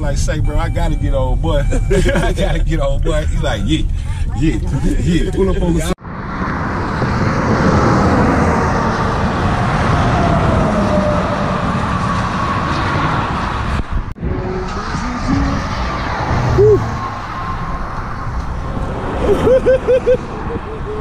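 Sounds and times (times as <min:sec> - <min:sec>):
car road noise on highway: 0:00.0 - 0:21.0.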